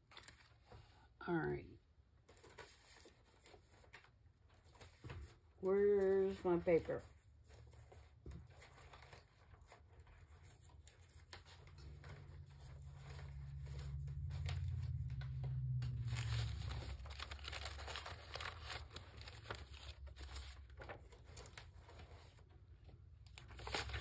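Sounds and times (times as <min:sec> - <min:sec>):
paper rustling and crinkling: 0:00.0 - 0:01.0, 0:02.2 - 0:24.0
low rumble: 0:11.7 - 0:19.6.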